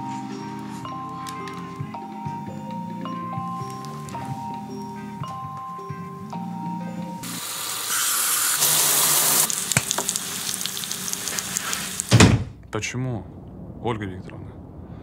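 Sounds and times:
phone marimba melody: 0.0 - 7.4
eggs sizzling in a pan: 7.2 - 12.2
loud steady hiss: 7.2 - 12.4.

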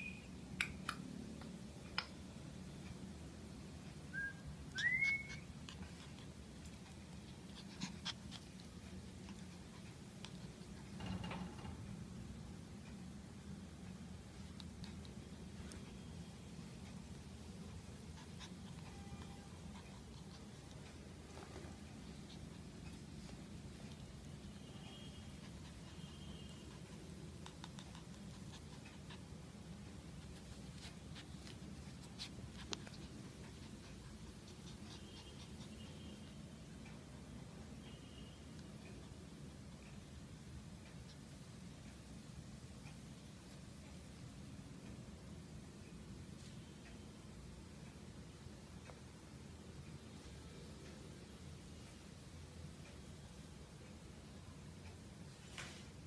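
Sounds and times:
puppy whining: 4.2 - 9.5.

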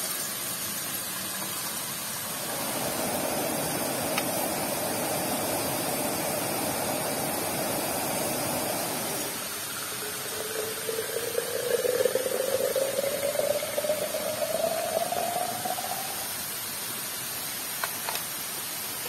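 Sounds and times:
waterfall rushing: 2.4 - 16.8.

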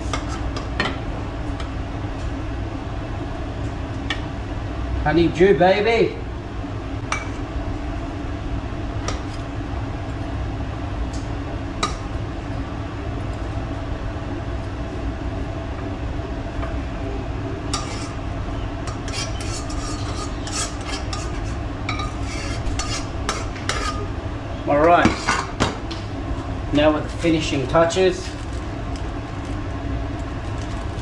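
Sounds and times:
steady low hum: 0.0 - 31.0
metal utensil scraping frying pan: 17.7 - 18.2, 18.9 - 24.1.

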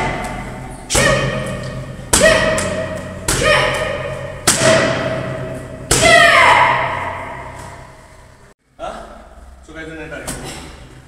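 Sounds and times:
person shouting: 3.3 - 4.1.

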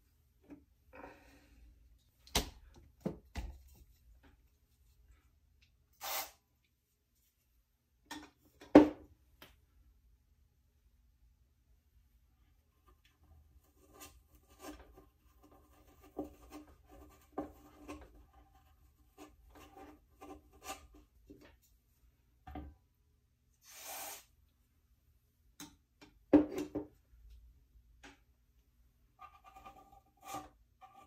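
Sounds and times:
short hiss: 6.0 - 6.4, 23.6 - 24.3.

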